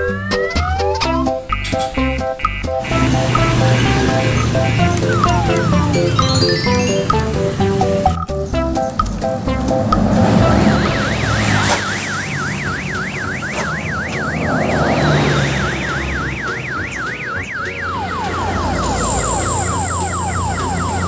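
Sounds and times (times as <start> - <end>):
electronic siren yelp: 0.0 - 1.4, 2.8 - 7.5, 10.4 - 21.0
road traffic rumble: 0.1 - 21.0.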